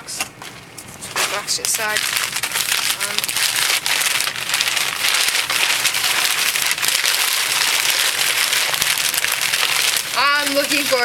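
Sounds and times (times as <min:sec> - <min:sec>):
packing paper crinkling: 0:00.9 - 0:11.0.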